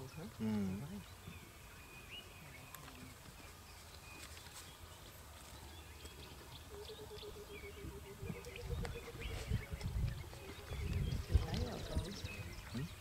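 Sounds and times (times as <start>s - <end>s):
low pulsing calls: 4.9s - 13.0s.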